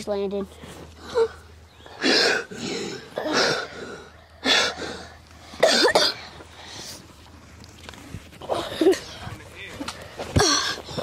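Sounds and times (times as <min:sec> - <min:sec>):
boy coughing: 0:02.0 - 0:03.8, 0:05.6 - 0:06.3, 0:10.4 - 0:10.8.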